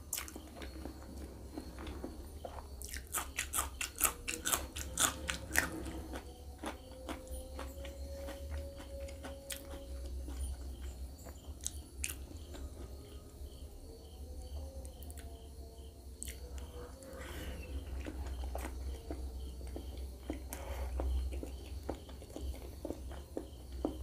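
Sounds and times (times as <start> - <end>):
close chewing and biting: 0.0 - 1.7, 2.8 - 12.9, 17.6 - 24.0
steady low hum: 0.0 - 24.0.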